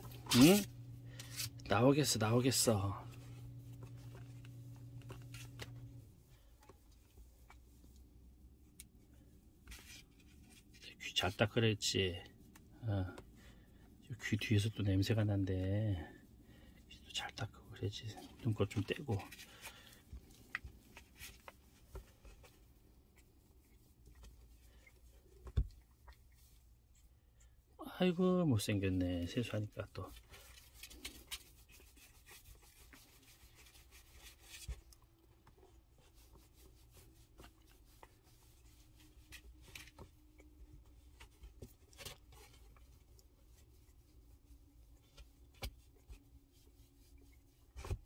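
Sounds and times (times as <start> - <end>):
wet wipe rubbing on fur: 20.2 - 27.1, 29.3 - 48.0.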